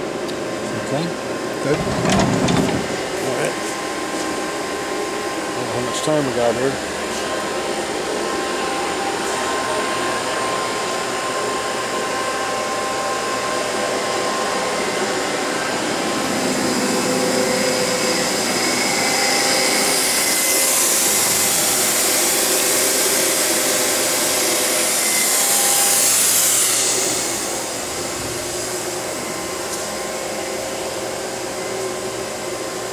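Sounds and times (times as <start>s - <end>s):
lathe machinery whirring: 1.6s - 3.4s.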